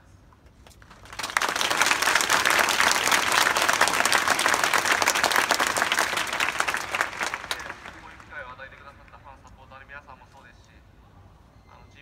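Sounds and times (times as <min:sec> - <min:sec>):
crowd applauding: 0:00.8 - 0:09.2.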